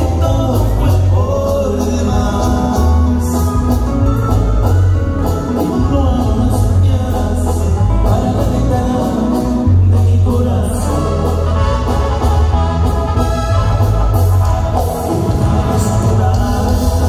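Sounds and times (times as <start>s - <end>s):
person singing: 0.0s - 4.6s, 5.2s - 12.0s, 15.3s - 17.0s
live band music: 0.0s - 17.0s.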